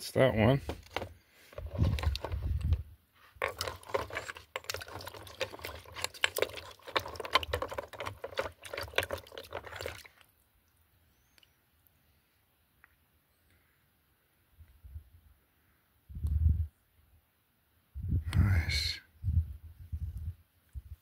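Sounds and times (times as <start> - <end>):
water splashing in a bucket: 0.7 - 2.8, 3.4 - 10.4.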